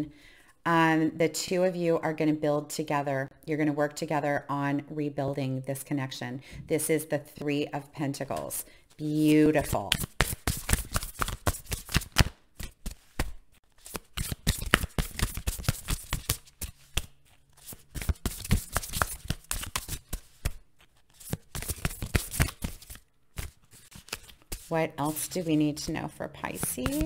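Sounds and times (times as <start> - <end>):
cards being shuffled: 9.4 - 27.0.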